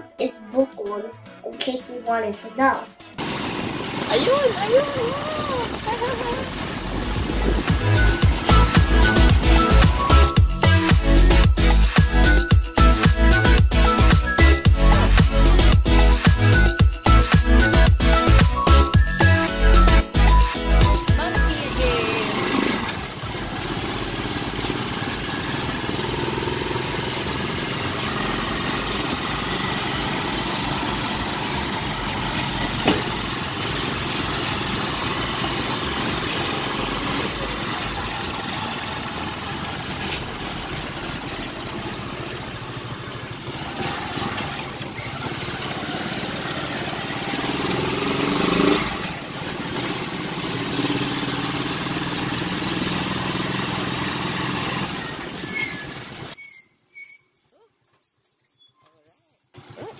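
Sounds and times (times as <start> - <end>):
motorcycle engine running: 3.1 - 56.4, 59.6 - 59.9
road and wind noise: 3.2 - 10.2.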